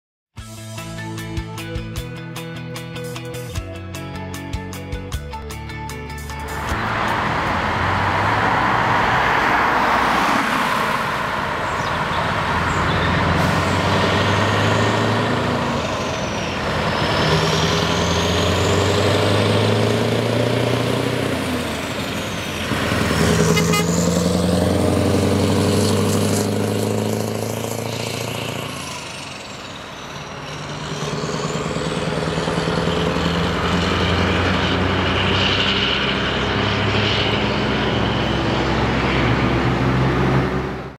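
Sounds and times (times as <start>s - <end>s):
truck accelerating through gears: 0.6s - 40.9s.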